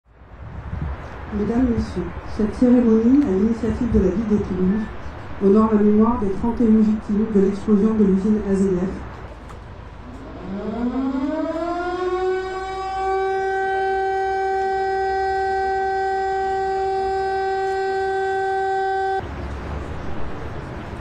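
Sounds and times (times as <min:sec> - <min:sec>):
siren winding up: 0:10.0 - 0:19.2.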